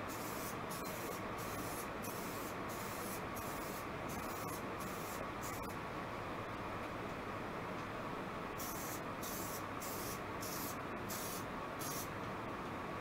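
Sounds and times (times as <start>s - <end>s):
spray can hissing: 8.6s - 12.1s.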